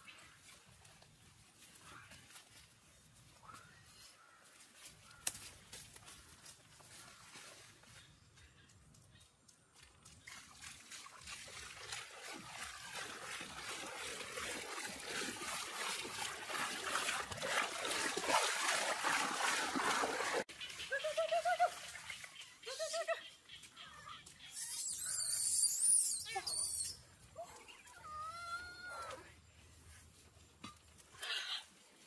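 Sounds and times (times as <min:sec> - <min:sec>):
water splashing: 0:10.2 - 0:22.6.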